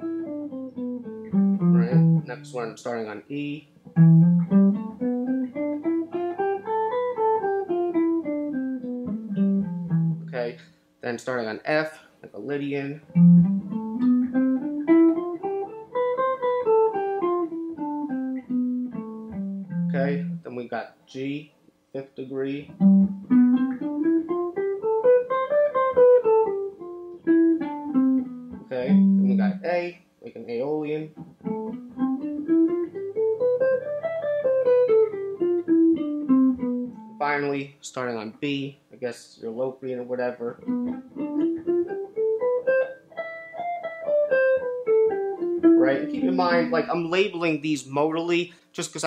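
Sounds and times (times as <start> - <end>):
electric guitar playing a scale: 0.0 - 2.7, 3.8 - 10.6, 12.9 - 20.5, 22.6 - 29.9, 31.2 - 37.5, 40.0 - 47.6.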